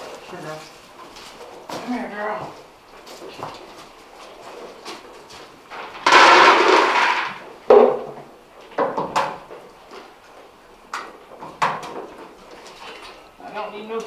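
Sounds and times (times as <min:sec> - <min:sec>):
sharp knocks and clatters: 0:05.7 - 0:09.6.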